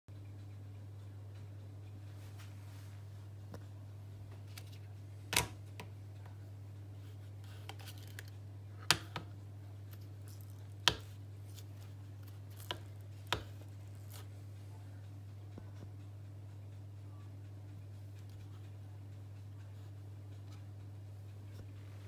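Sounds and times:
steady low hum: 0:00.1 - 0:22.0
plastic clicks and knocks: 0:07.7 - 0:09.4.

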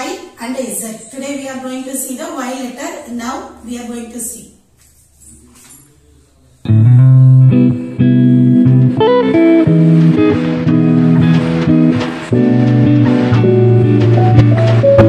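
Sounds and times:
background music with plucked guitar: 0:06.7 - 0:15.0.

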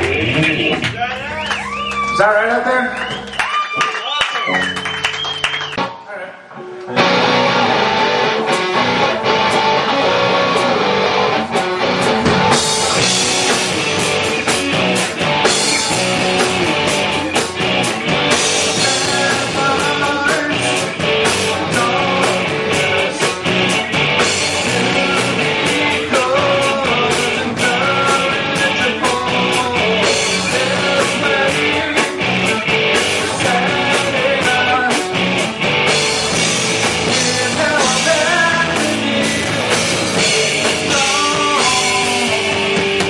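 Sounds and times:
rock band playing live: 0:00.0 - 0:43.0
drum and cymbal hits: 0:11.5 - 0:43.0.

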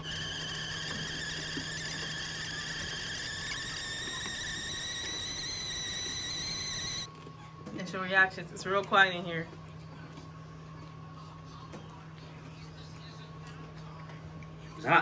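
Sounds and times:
high rising whistling tone: 0:00.0 - 0:07.1
steady low hum: 0:00.0 - 0:15.0.

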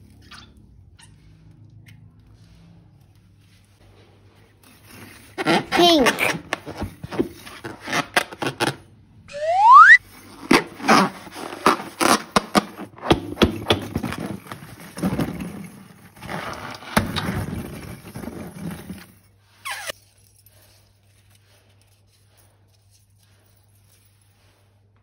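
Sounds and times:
rubbery squeaks: 0:04.7 - 0:20.0
balloons and slime crackling: 0:04.8 - 0:18.7
short falling squeal: 0:09.3 - 0:10.0.

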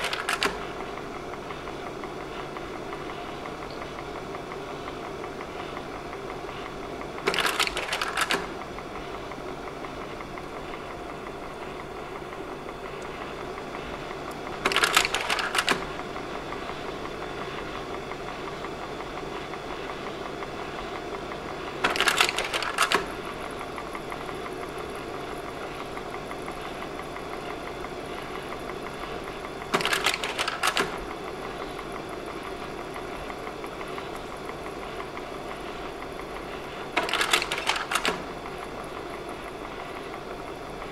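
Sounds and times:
slide-change mechanism clacking: 0:00.0 - 0:00.6, 0:14.3 - 0:15.9, 0:29.7 - 0:31.0, 0:37.0 - 0:38.3
slide projector whirring: 0:00.0 - 0:40.9.

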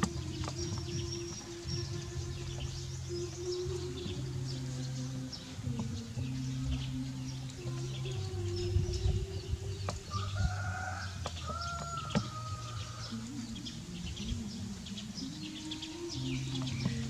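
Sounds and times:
drawn-out pitched animal calls: 0:00.0 - 0:17.0
faint chirping and ticking: 0:00.0 - 0:17.0
low wavering animal call: 0:00.0 - 0:17.0.

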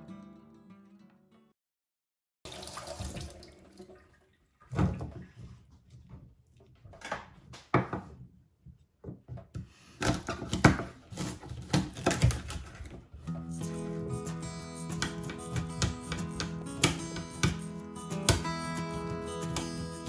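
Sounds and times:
knife chopping on wooden board: 0:10.0 - 0:12.6, 0:14.9 - 0:18.5.

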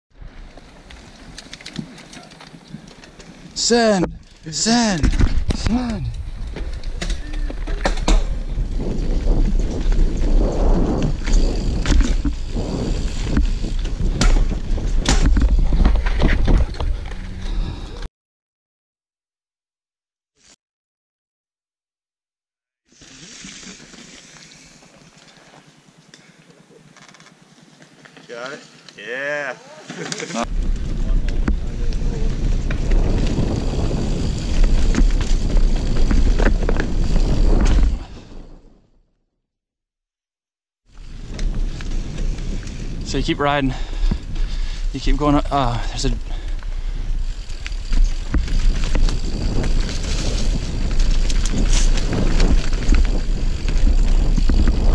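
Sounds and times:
bike rattling and knocking: 0:00.8 - 0:17.3, 0:30.4 - 0:38.2, 0:41.0 - 0:54.9
wind buffeting microphone: 0:05.2 - 0:17.9, 0:30.5 - 0:38.6, 0:41.0 - 0:54.9
tyres rumbling over dirt and rock: 0:29.9 - 0:38.4, 0:41.0 - 0:54.9.

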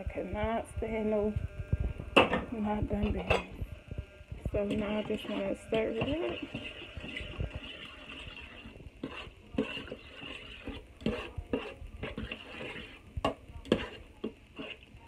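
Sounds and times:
spoon squelching in thick chili: 0:04.7 - 0:15.0.

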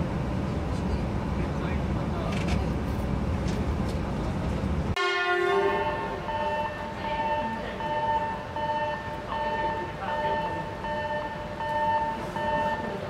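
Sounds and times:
train running rumble: 0:00.0 - 0:05.0
train arriving at platform: 0:00.0 - 0:13.0
train horn blast: 0:05.0 - 0:12.8
high beeping tone: 0:05.3 - 0:13.0.

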